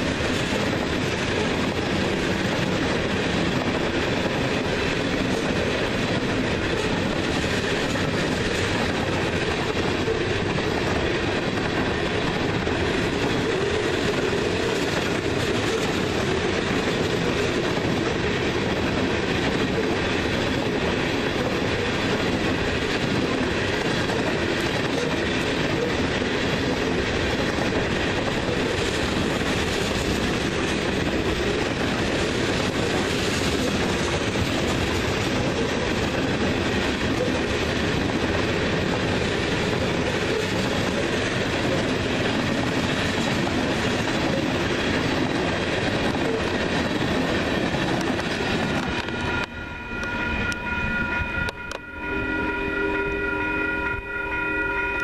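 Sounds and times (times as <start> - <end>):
freight train wheels on rails: 0.0 - 55.0.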